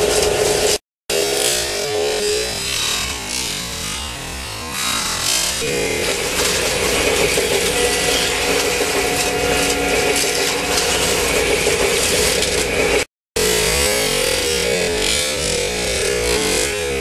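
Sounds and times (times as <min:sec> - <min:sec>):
slot car motors whirring: 0:00.0 - 0:17.0
cars rattling over track: 0:05.6 - 0:13.1.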